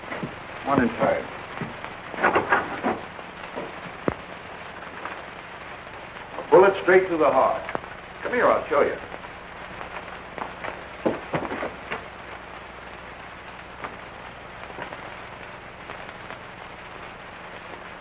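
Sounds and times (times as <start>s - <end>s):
film soundtrack hiss and crackle: 0.0s - 18.0s
steady low hum: 0.0s - 18.0s.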